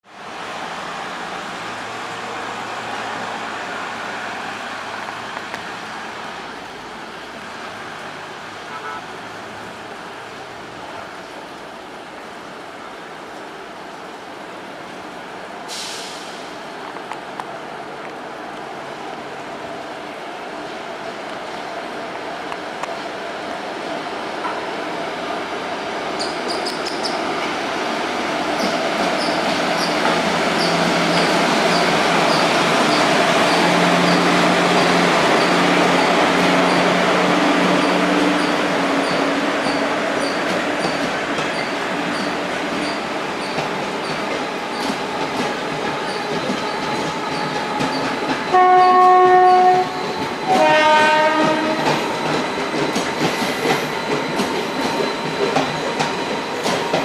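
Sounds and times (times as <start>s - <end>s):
train horn blasts: 8.7s - 9.2s, 48.5s - 51.9s
train wheels clicking over rail joints: 28.4s - 57.0s.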